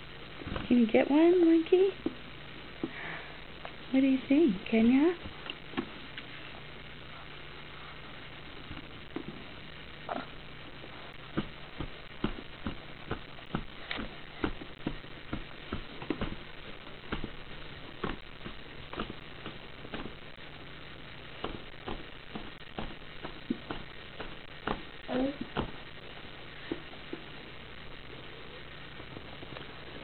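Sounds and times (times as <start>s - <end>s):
hands patting plastic tray: 11.3s - 20.3s, 21.4s - 25.9s.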